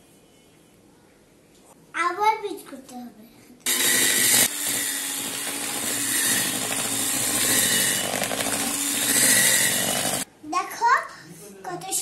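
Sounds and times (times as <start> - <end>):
electric mixer whipping: 3.7 - 10.3.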